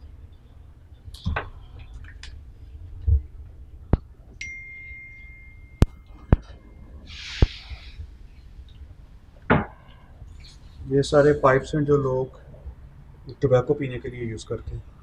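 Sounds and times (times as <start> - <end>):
high ringing ding: 4.4 - 6.9.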